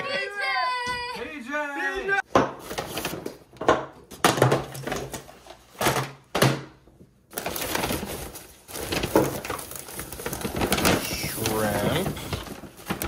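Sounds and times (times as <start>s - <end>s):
paper bags rustling: 7.3s - 13.0s.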